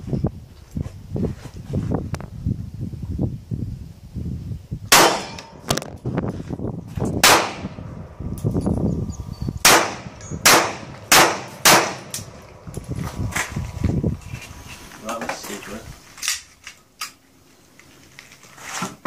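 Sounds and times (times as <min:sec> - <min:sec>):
pistol shots: 0:04.9 - 0:05.8, 0:07.2 - 0:07.8, 0:09.6 - 0:12.4.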